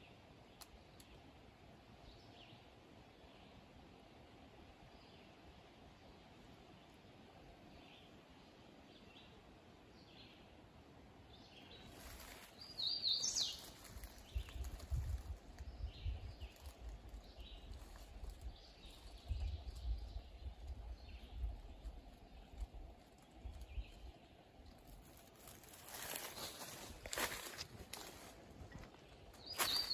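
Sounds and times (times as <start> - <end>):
birds chirping: 11.8 - 24.5, 25.1 - 29.9.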